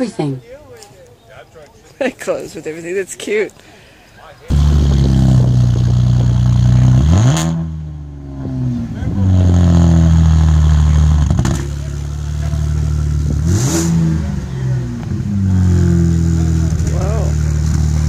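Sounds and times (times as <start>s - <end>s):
car engine idling: 4.4s - 18.0s
engine throttle blips: 4.5s - 18.0s.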